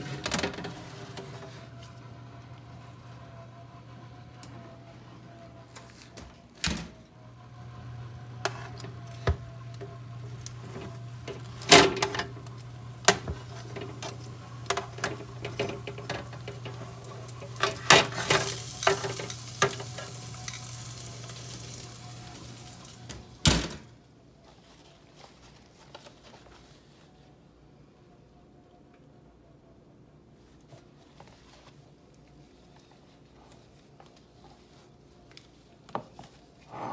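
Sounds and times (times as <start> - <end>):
hot pan sizzling: 7.8 - 23.5
metal tongs scraping baking sheet: 13.4 - 21.9.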